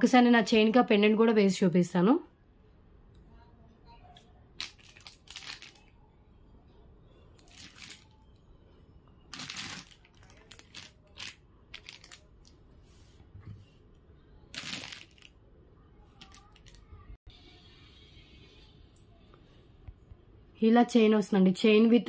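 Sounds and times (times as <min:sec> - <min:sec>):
packaging crinkling: 0:04.6 - 0:05.9, 0:07.4 - 0:08.2, 0:09.3 - 0:12.5, 0:14.5 - 0:15.4, 0:16.2 - 0:16.8.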